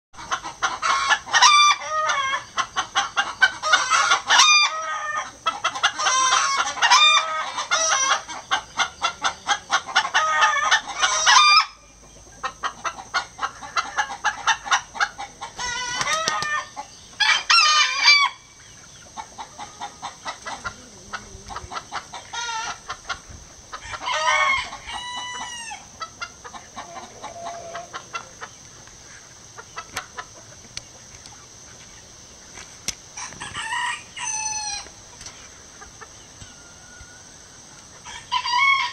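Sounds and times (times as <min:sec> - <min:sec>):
chickens cackling: 0:00.2 - 0:38.9
rooster crowing: 0:23.8 - 0:25.9, 0:26.8 - 0:28.4, 0:33.2 - 0:34.9, 0:38.0 - 0:38.9.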